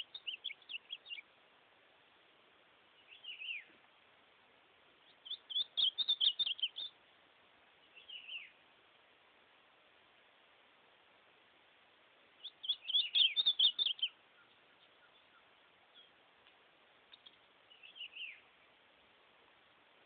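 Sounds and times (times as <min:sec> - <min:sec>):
bird singing warbled notes: 0:00.0 - 0:01.2, 0:05.1 - 0:07.0, 0:12.4 - 0:16.1.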